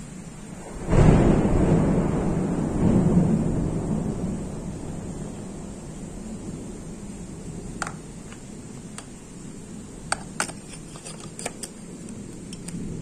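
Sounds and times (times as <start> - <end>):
steady low rumble: 1.6 - 13.0
phone handling clicks and taps: 7.8 - 9.1, 10.1 - 12.8.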